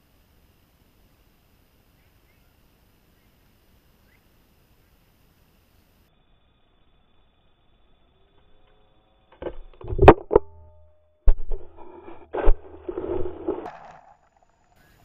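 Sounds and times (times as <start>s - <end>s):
camera tumbling through grass: 9.4s - 10.7s, 11.3s - 15.0s.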